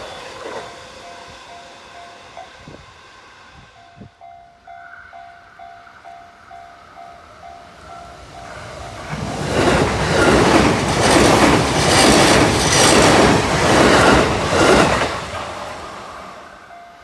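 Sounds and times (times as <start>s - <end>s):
electric train passing: 0.0s - 17.0s
level crossing warning bell: 3.8s - 9.0s, 16.5s - 17.0s
train wheels clattering on rails: 8.1s - 16.4s.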